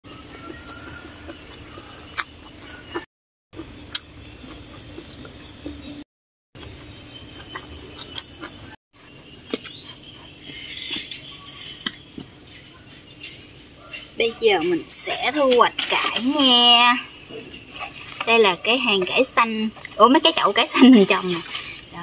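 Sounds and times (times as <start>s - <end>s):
noodles slurped and chewed: 0.3s - 5.8s
mouth smacks: 1.3s - 3.0s.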